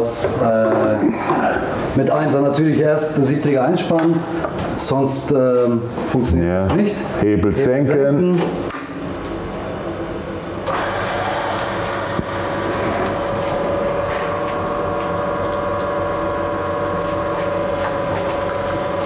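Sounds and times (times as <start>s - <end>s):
espresso machine pump running: 10.1s - 19.0s.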